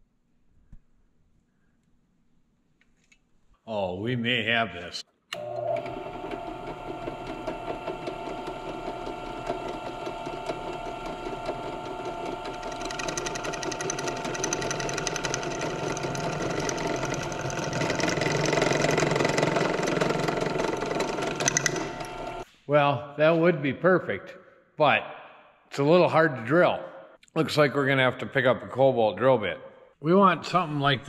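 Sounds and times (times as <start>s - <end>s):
drill bit grinding metal: 5.4s - 22.4s
drill press motor running: 5.4s - 22.4s.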